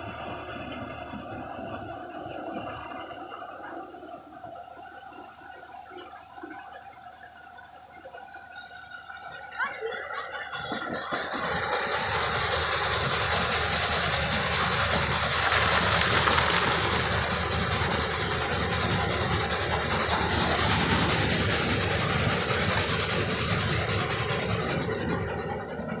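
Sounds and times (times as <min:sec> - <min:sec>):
low mechanical rumble: 0:00.0 - 0:26.0
machine hissing: 0:07.9 - 0:26.0.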